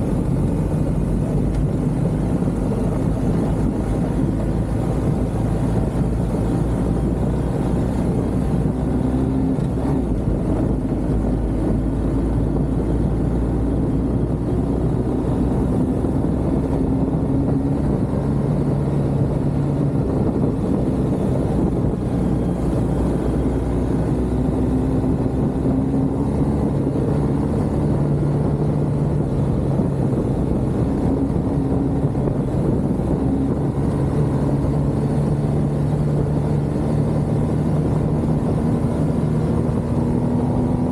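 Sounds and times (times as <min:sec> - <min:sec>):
road and wind noise: 0:00.0 - 0:40.9
vehicle engine running: 0:00.0 - 0:40.9.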